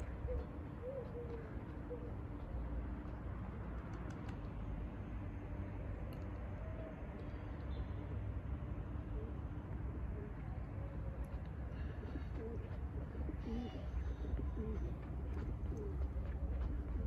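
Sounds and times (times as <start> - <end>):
pigeons cooing: 0.2 - 2.1, 11.8 - 16.2.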